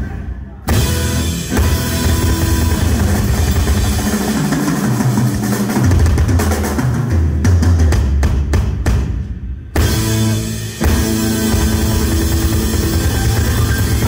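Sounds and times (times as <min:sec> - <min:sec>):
bass and guitar notes: 0:00.0 - 0:06.4, 0:09.7 - 0:14.0
rock drumming: 0:00.0 - 0:14.0.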